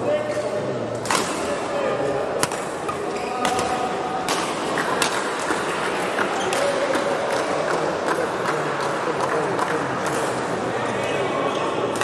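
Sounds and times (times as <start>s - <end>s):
murmur of voices: 0.0s - 12.0s
rackets hitting shuttlecock: 2.4s - 8.6s.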